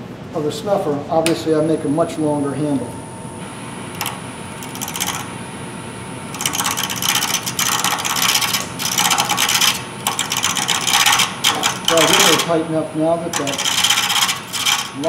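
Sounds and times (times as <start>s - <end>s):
turning tool scraping wood: 4.0s - 5.3s, 6.3s - 15.0s
wood lathe running: 4.0s - 5.4s, 6.2s - 15.0s.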